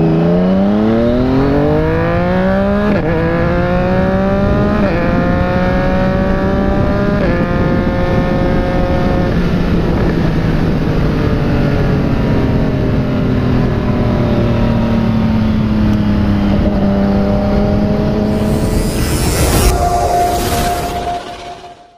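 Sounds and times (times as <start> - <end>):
rushing wind noise: 17.8 - 21.9.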